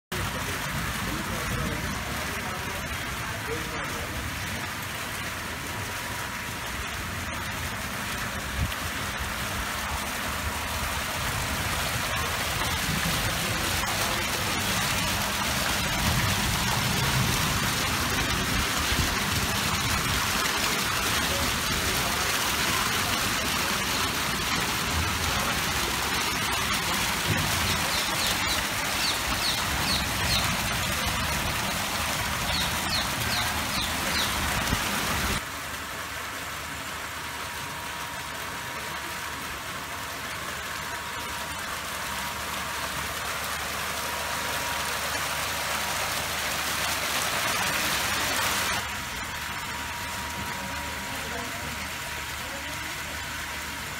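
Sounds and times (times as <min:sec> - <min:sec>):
fountain jets splashing: 0:00.0 - 0:53.9
water sheeting down stone wall: 0:00.1 - 0:53.9.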